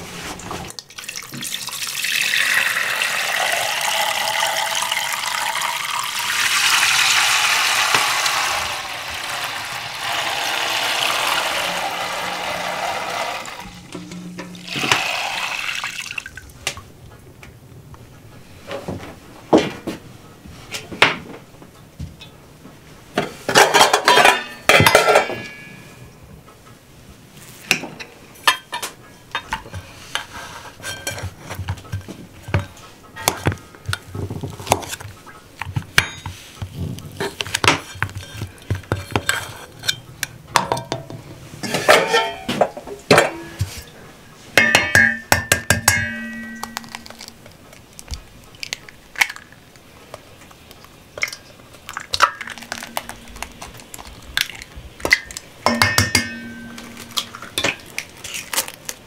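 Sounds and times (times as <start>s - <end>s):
metal bowl ringing: 11.5s - 15.9s, 42.0s - 42.5s, 44.6s - 47.3s, 55.6s - 57.8s.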